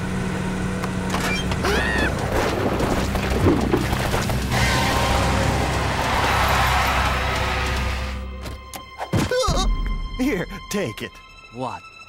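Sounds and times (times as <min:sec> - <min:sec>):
cartoon background music: 0:04.4 - 0:12.0.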